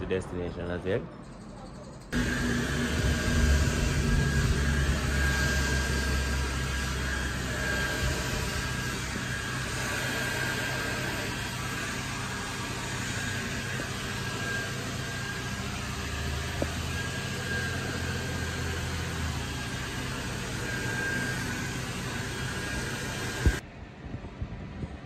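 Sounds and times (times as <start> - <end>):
low machine hum: 2.2 - 9.9.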